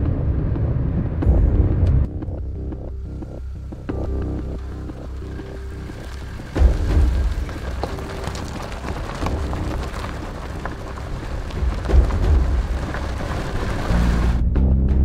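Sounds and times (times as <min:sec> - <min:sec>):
car deep rumble: 0:00.0 - 0:15.0
tyres crunching over gravel: 0:03.9 - 0:14.5.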